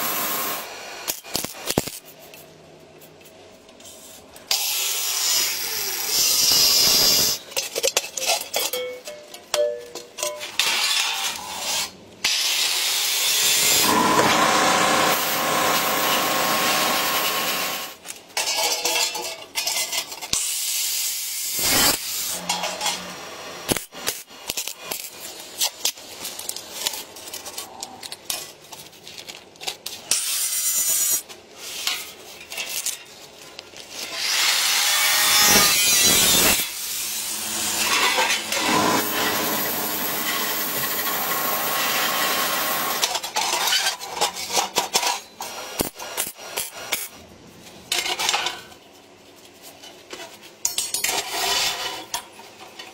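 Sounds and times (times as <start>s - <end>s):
hand tools scraping and rasping: 33.8s - 47.1s, 49.6s - 52.9s.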